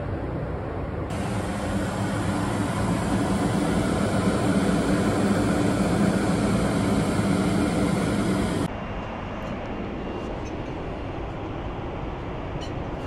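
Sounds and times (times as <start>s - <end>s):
airliner cabin air rush: 0.0s - 12.5s
low engine hum: 1.0s - 8.7s.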